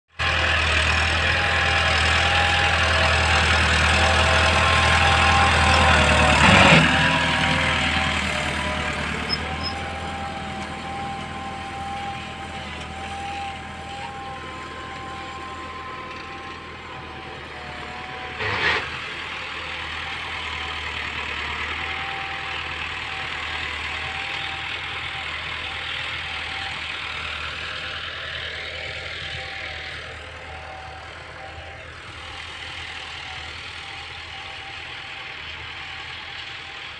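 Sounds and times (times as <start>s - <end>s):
tractor diesel engine under load: 0.1s - 36.9s.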